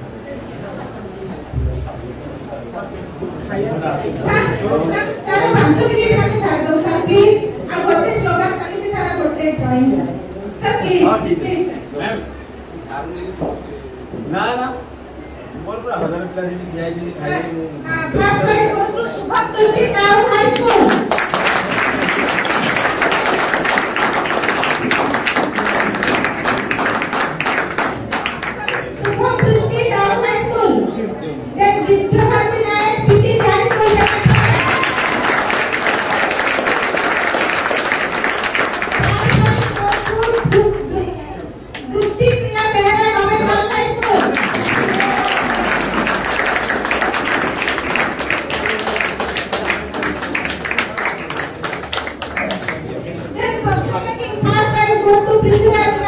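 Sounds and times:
crowd applauding: 20.6s - 29.4s, 33.4s - 40.8s, 41.7s - 53.0s.

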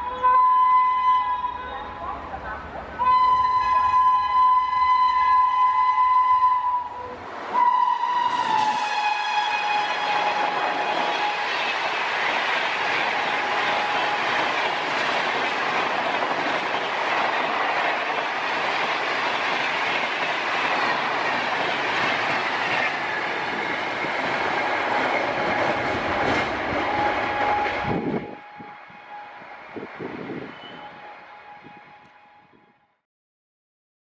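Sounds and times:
train wheels on rails: 1.9s - 32.2s
clickety-clack over rail joints: 8.2s - 28.0s.

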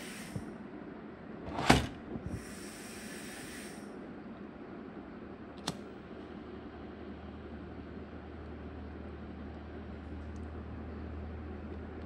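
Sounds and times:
hiss: 0.0s - 0.6s, 2.3s - 4.0s.

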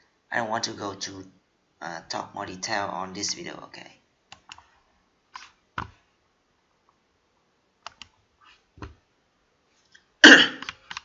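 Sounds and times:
computer mouse clicking: 4.3s - 6.0s, 7.8s - 8.2s, 10.6s - 11.0s.

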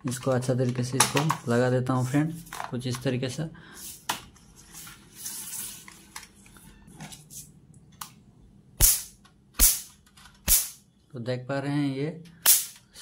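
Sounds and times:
electric spark crack: 8.8s - 9.9s, 10.5s - 10.8s, 12.5s - 12.8s.

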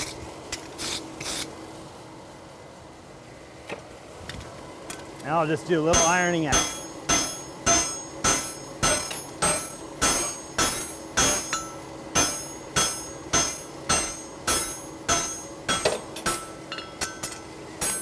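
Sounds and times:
hammer striking horseshoe on anvil: 5.8s - 18.0s.

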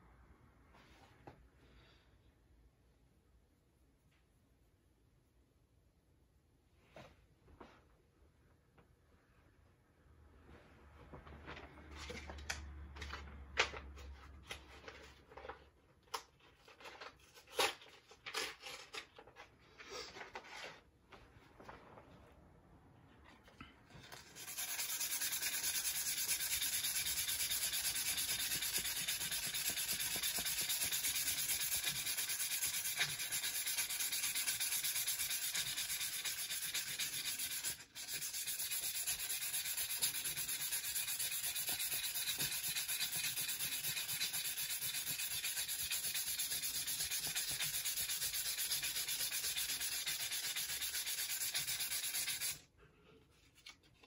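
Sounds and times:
sandpaper scraping metal: 24.1s - 52.6s.

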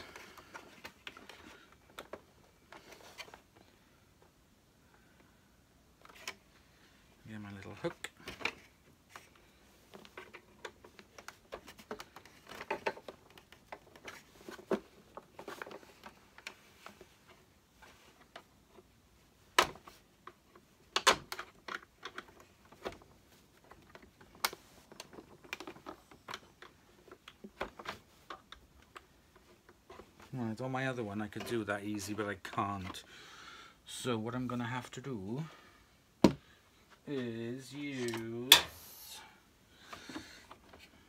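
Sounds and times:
plastic parts clicking and knocking: 0.0s - 4.4s, 6.0s - 6.5s, 7.6s - 30.3s.

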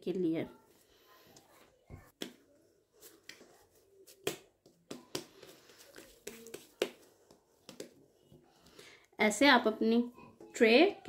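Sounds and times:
dough slapping between hands: 2.1s - 2.4s, 3.0s - 8.0s.

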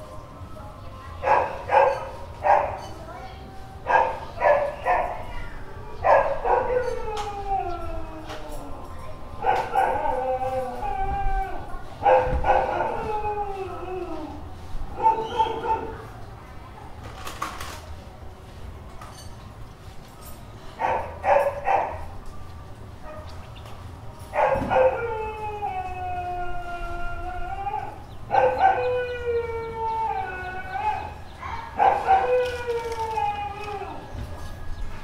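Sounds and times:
dog barking: 1.2s - 2.9s, 3.9s - 5.3s, 6.0s - 6.7s, 9.4s - 10.0s, 12.0s - 12.9s, 15.0s - 16.0s, 20.8s - 22.1s, 24.4s - 25.0s, 28.3s - 28.9s, 31.7s - 32.3s
dog howling: 5.8s - 16.0s, 24.4s - 34.2s.

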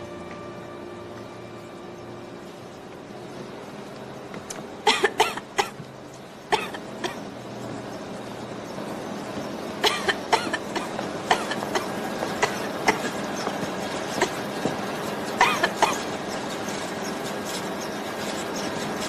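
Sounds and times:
steady machinery noise: 0.0s - 19.0s
person coughing: 9.8s - 13.1s.

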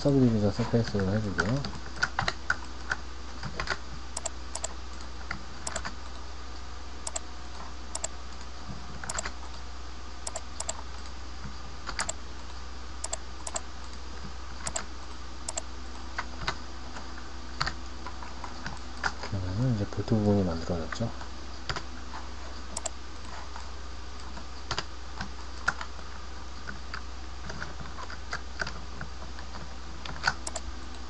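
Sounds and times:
keyboard and mouse clicks: 1.4s - 6.0s, 7.0s - 7.2s, 7.9s - 9.4s, 10.2s - 11.1s, 11.9s - 12.2s, 13.0s - 14.0s, 14.6s - 14.9s, 15.5s - 15.7s, 22.7s - 23.0s, 30.0s - 30.7s.

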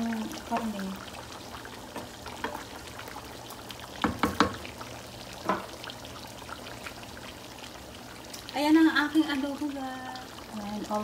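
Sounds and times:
sauce simmering and bubbling: 0.0s - 11.0s
wooden spatula knocking pan: 4.0s - 4.7s, 5.4s - 5.7s.

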